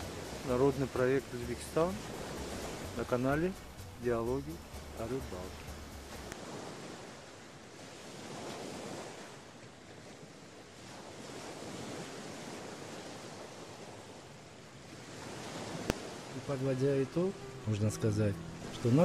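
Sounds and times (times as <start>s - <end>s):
wide rushing hiss: 0.0s - 6.6s, 15.4s - 19.0s.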